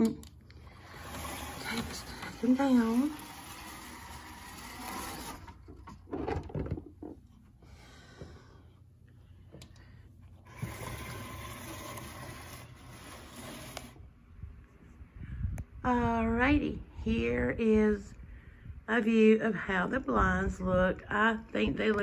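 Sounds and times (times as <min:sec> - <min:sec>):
blind rustling hiss: 0:00.7 - 0:05.7, 0:10.4 - 0:14.0
blind knocking: 0:00.8 - 0:06.9, 0:10.5 - 0:13.9.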